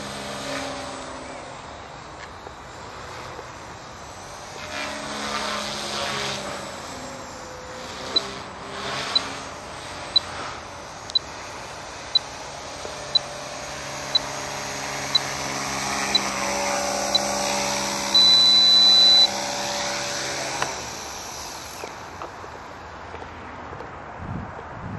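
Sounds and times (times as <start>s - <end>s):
model aircraft motor whining: 0.0s - 22.4s
high electronic beeps: 18.2s - 19.3s.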